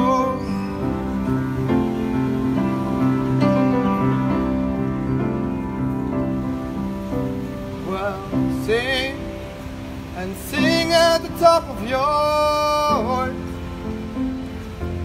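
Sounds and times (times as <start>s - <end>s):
man singing with vibrato: 0.0s - 1.4s, 7.7s - 13.8s
piano chords: 0.0s - 15.0s.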